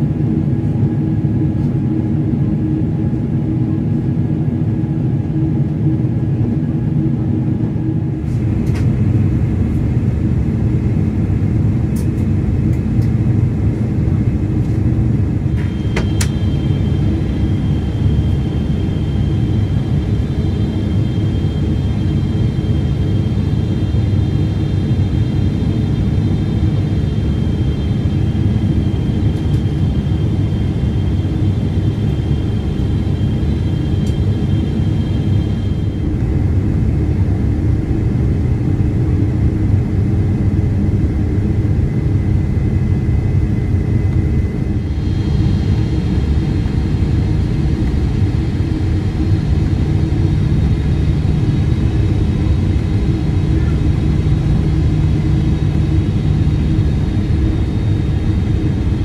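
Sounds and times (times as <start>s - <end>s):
jet engine roar in cabin: 0.0s - 59.0s
high steady whine: 4.3s - 59.0s.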